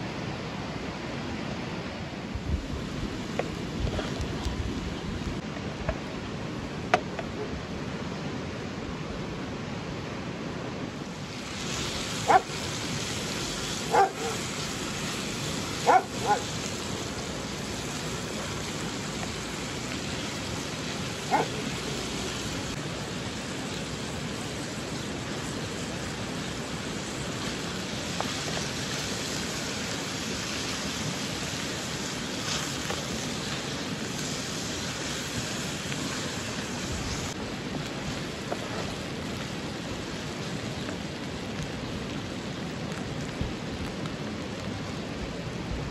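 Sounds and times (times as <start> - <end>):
steady hiss: 0.0 - 45.9
dog barking: 12.3 - 12.5, 13.9 - 14.4, 15.8 - 16.5, 21.3 - 21.6.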